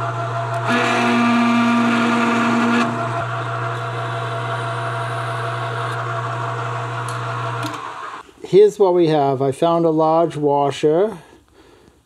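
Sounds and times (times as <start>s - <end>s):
drilling whine: 0.0s - 8.2s
lathe motor hum: 0.0s - 8.2s.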